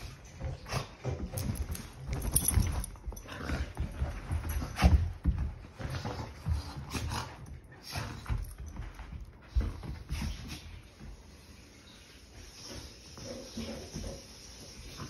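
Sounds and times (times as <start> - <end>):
paws scuffling on carpet: 0.0 - 11.6.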